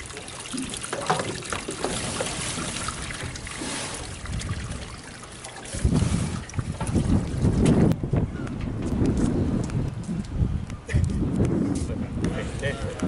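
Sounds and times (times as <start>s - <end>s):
water pouring into boat hull: 0.0s - 8.0s.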